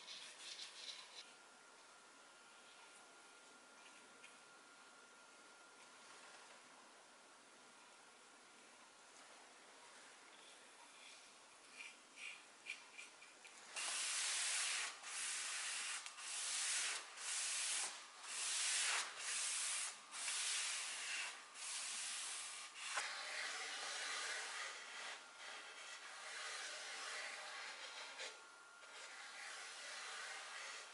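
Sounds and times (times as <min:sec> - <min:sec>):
faint light scratches: 0:00.0 - 0:01.3, 0:22.8 - 0:30.9.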